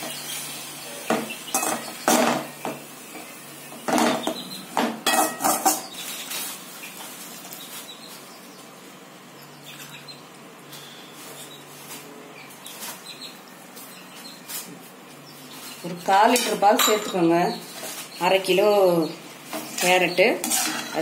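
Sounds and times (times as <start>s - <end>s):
metal spoon scraping a pan: 19.5s - 21.0s.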